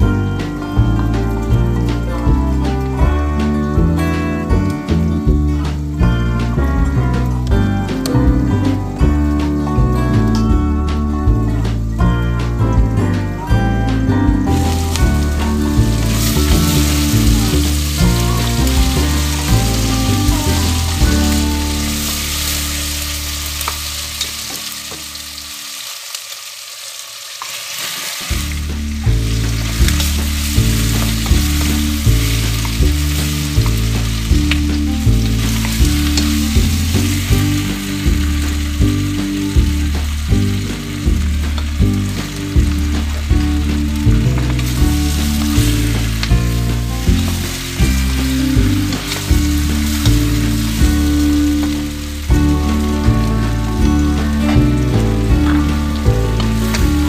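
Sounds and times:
vegetables sizzling in a pot: 0.0s - 12.8s, 13.4s - 57.0s
background music with steady beat: 0.0s - 25.6s, 28.3s - 57.0s.

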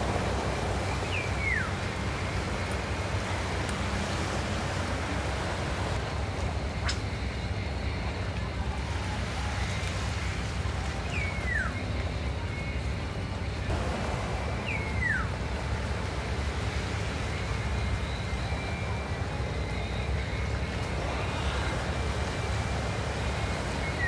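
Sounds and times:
waves on shore: 0.0s - 24.0s
wind: 0.0s - 24.0s
bird whistling: 0.7s - 2.0s, 11.0s - 12.7s, 14.4s - 15.6s, 17.3s - 24.0s.

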